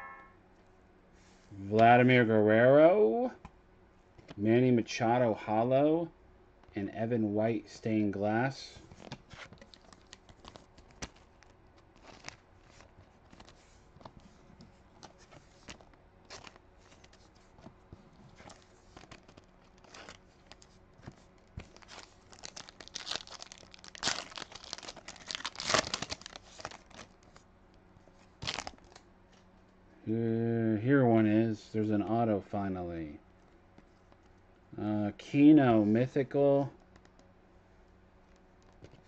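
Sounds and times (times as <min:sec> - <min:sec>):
plastic wrapper crinkling and tearing: 0:08.9 - 0:14.2, 0:15.0 - 0:17.3, 0:18.4 - 0:27.4, 0:28.4 - 0:29.0.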